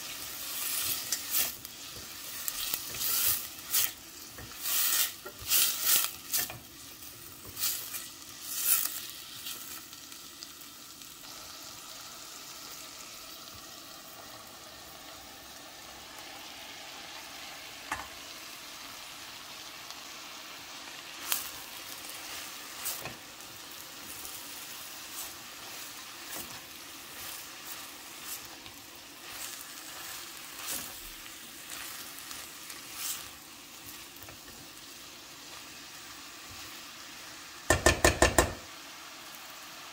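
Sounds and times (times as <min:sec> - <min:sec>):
vegetables sizzling in oil: 0:00.0 - 0:39.9
spatula scraping and knocking pot: 0:37.7 - 0:38.6.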